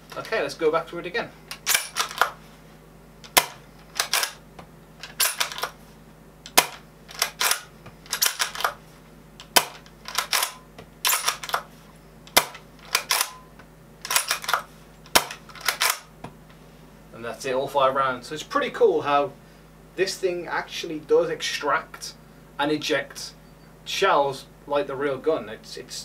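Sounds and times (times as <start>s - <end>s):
rifle bolt metallic clicks: 1.5s - 2.3s, 3.3s - 4.4s, 6.5s - 8.8s, 9.4s - 11.7s, 12.3s - 13.4s, 14.1s - 16.1s.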